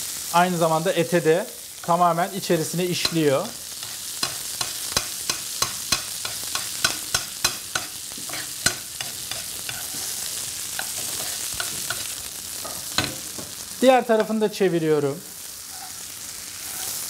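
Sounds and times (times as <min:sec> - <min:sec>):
meat sizzling in butter: 0:00.0 - 0:17.0
metal spoon clinking on pan: 0:03.0 - 0:10.0, 0:10.8 - 0:12.1.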